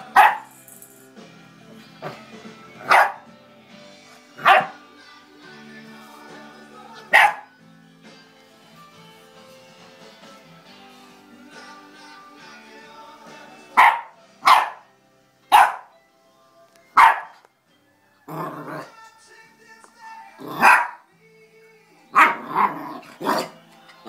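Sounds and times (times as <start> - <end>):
puppy barking: 0.0 - 0.5, 2.8 - 3.3, 4.4 - 4.8, 7.0 - 7.5, 13.8 - 14.9, 15.5 - 15.9, 17.0 - 17.4, 20.5 - 21.1, 22.2 - 23.6.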